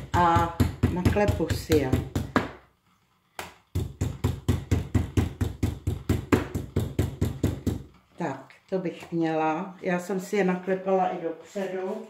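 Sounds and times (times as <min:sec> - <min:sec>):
meat pounded with metal spoon: 0:00.0 - 0:02.7, 0:03.4 - 0:08.0.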